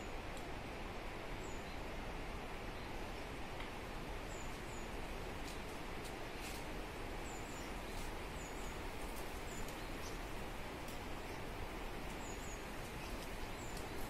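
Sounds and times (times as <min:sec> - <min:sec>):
small birds chirping: 0:01.4 - 0:01.9, 0:04.2 - 0:05.8, 0:06.4 - 0:14.0
faint clicks: 0:13.0 - 0:14.0.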